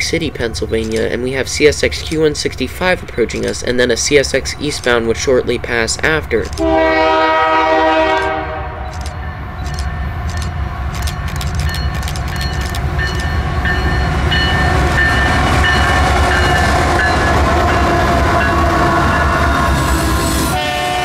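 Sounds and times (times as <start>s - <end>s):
freight train rumble: 0.0s - 21.0s
sharp clicks: 0.6s - 3.9s, 6.1s - 6.7s, 8.2s - 13.4s.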